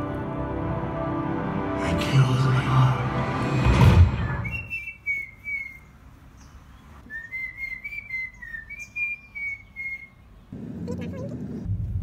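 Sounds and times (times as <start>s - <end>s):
whistled notes: 3.9s - 5.9s, 7.0s - 10.2s.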